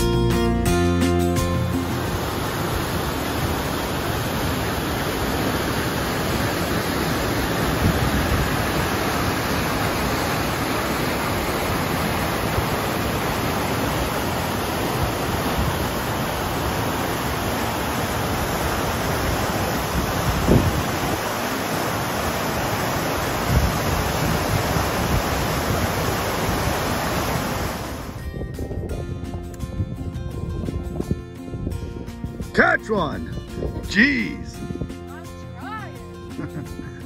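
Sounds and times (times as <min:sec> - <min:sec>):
river rapids rushing over rocks: 0:01.8 - 0:28.2.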